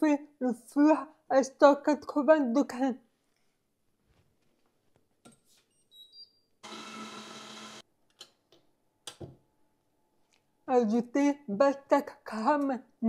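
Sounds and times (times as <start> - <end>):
electric stand mixer whisking: 6.6 - 7.8.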